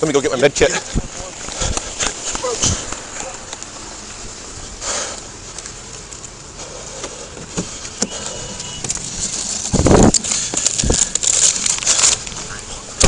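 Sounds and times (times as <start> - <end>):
clothing rustling against microphone: 0.3 - 13.0
footsteps: 0.7 - 4.2.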